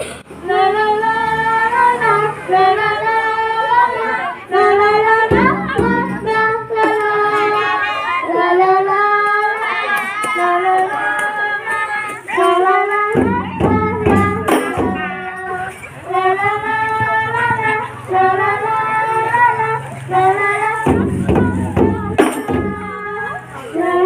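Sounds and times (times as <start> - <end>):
girl singing: 0.4 - 24.0
frame drum strokes: 5.0 - 7.1, 13.1 - 18.2, 20.8 - 23.2.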